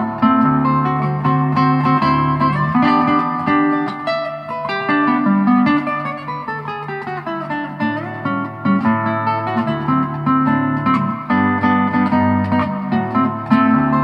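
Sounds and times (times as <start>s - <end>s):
fingerpicked classical guitar: 0.0s - 14.0s.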